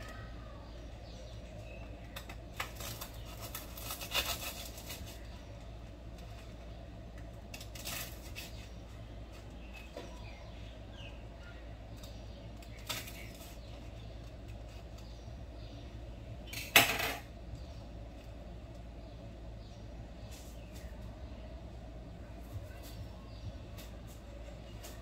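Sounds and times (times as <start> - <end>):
knife cutting bread: 2.5 - 5.3.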